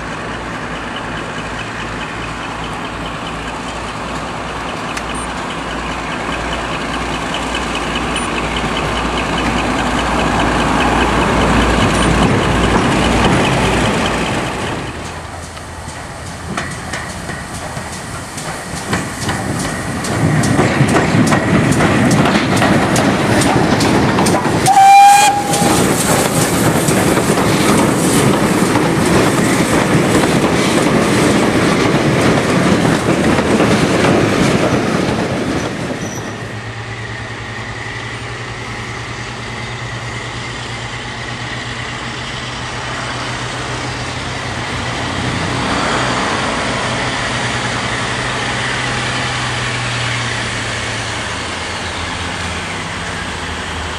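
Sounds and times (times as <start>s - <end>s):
diesel locomotive droning: 0.0s - 53.9s
train wheels clattering over rail joints: 0.1s - 53.9s
train whistle blast: 24.7s - 25.9s.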